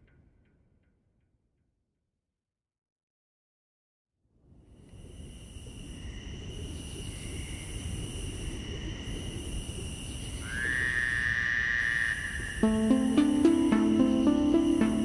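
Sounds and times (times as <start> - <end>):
steady high hiss: 12.5 - 15.0
high synth tone sliding up: 12.6 - 15.0.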